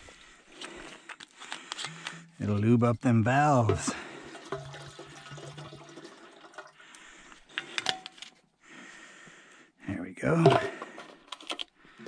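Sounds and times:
fuel pouring into tank: 3.5s - 8.0s
gas can knocks and clatters: 3.6s - 6.7s, 7.6s - 8.2s, 10.4s - 11.7s.

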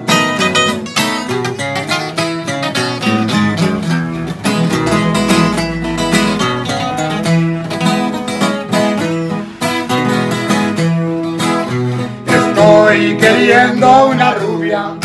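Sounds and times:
acoustic guitars playing: 0.0s - 15.0s.

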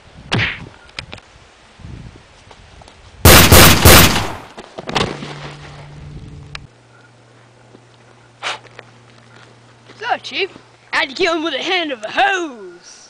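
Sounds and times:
gunshots: 3.3s - 4.5s.

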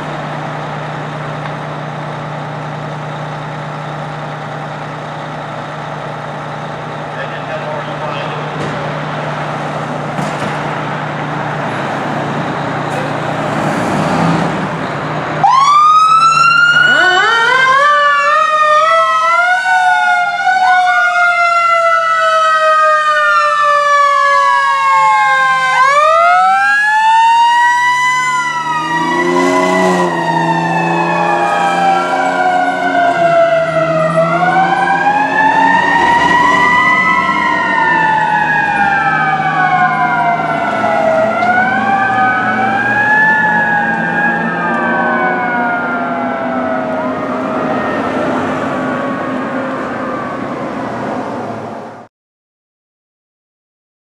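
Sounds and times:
fire engine idling hum: 0.0s - 13.5s, 14.7s - 29.0s, 30.1s - 50.8s
siren wailing: 15.4s - 51.1s.

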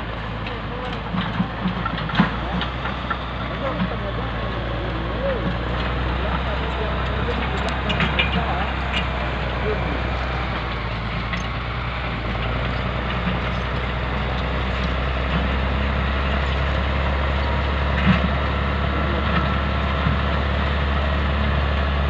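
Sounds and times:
bulldozer diesel engine running: 0.0s - 22.0s.

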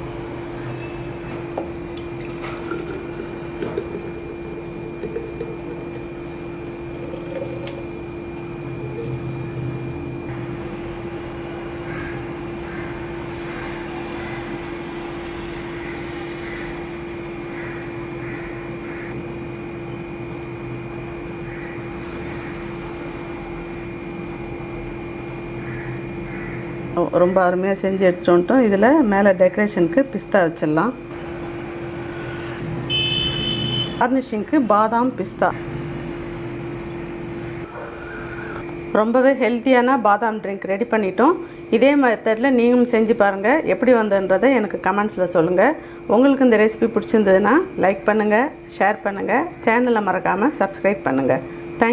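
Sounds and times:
thick liquid pouring into cups: 1.8s - 4.3s, 6.9s - 9.2s.

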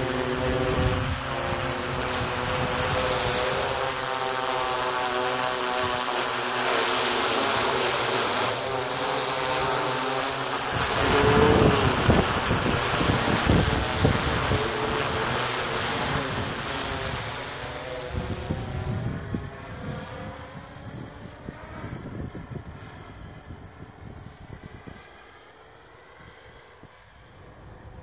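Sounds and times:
wind buffeting microphone: 0.0s - 4.0s, 10.5s - 25.1s
quadcopter rotors humming: 0.0s - 28.0s.

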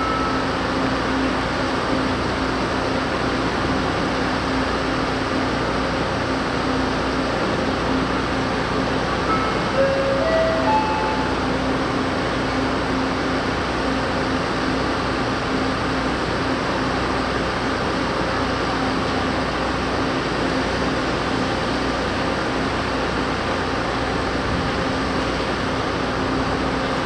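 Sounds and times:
air-conditioning hum: 0.0s - 17.5s
diesel railcar engine idling: 0.0s - 27.0s.

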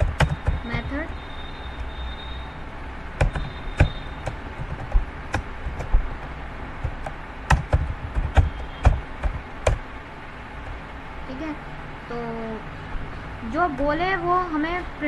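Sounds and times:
keyboard typing: 0.0s - 2.0s, 3.2s - 9.8s.

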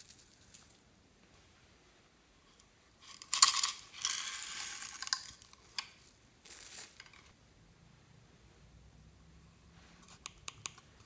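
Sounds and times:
small hard discs rattling: 3.1s - 6.0s.

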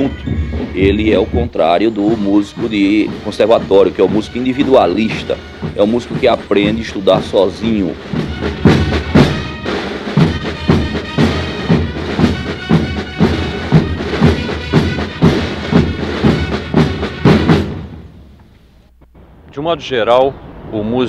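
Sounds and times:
held wind instrument tones: 0.0s - 7.2s
military band playing a march: 0.0s - 18.1s
bass and snare drums beating: 0.0s - 18.3s.

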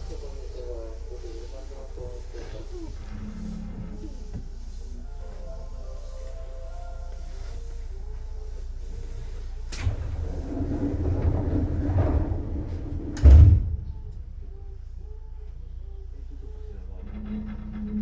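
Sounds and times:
train doors sliding: 9.3s - 14.4s
train door click: 9.7s - 12.2s
heavy thud of doors shutting: 9.8s - 14.4s.

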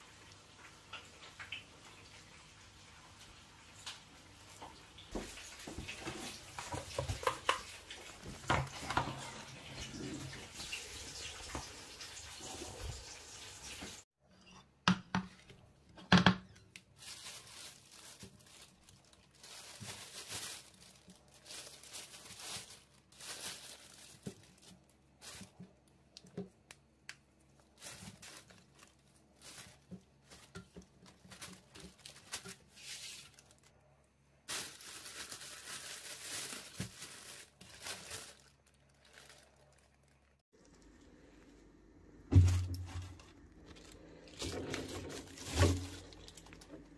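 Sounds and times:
plastic bag crinkling: 16.5s - 26.8s, 27.4s - 33.8s, 34.4s - 41.0s, 42.3s - 46.9s.

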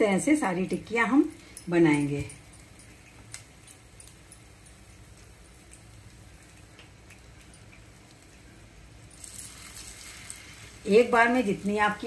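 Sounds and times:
patty crackling in frying oil: 2.6s - 12.0s.

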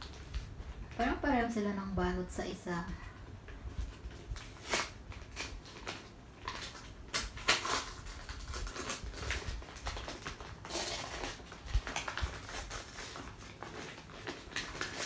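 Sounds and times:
wrapping paper tearing and rustling: 0.0s - 1.1s, 3.7s - 15.0s.

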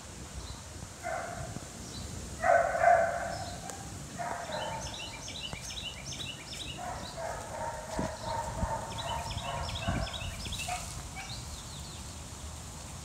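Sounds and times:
small birds chirping: 2.8s - 12.6s.

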